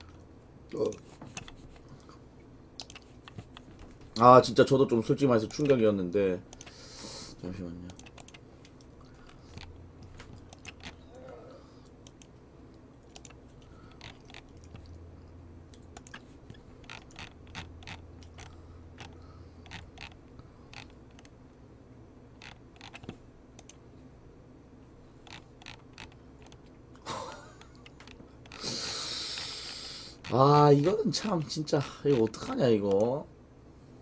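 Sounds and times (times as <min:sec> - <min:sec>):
keyboard typing: 0:02.8 - 0:03.8, 0:05.4 - 0:05.8, 0:07.9 - 0:08.4, 0:09.1 - 0:11.0, 0:13.0 - 0:15.0, 0:15.7 - 0:21.3, 0:22.4 - 0:23.8, 0:25.2 - 0:26.7, 0:30.2 - 0:33.1.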